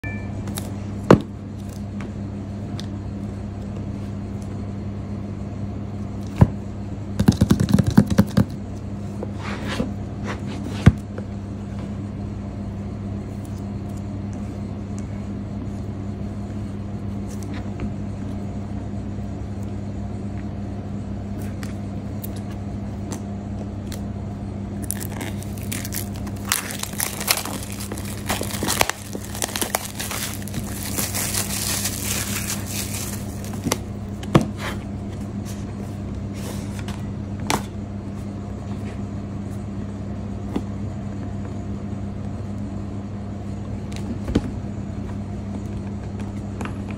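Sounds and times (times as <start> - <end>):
steady low hum: 0.0 - 46.9
plastic wrap crinkling: 24.8 - 33.9.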